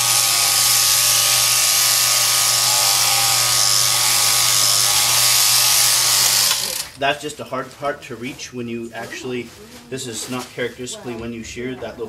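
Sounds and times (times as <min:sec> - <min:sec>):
electric shearing handpiece buzzing: 0:00.0 - 0:07.0.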